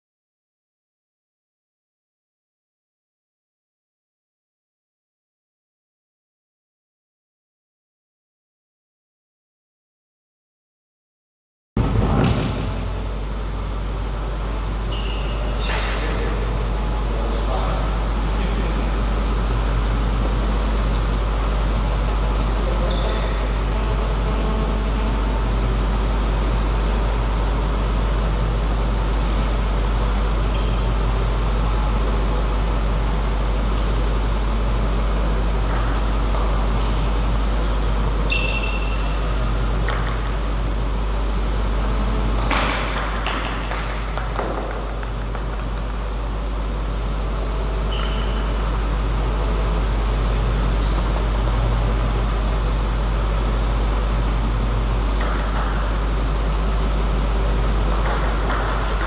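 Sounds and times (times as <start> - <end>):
hall background hum and hiss: 11.8 - 59.0
short high squeaks: 14.8 - 15.8, 22.8 - 24.6, 38.2 - 39.3, 47.8 - 48.6.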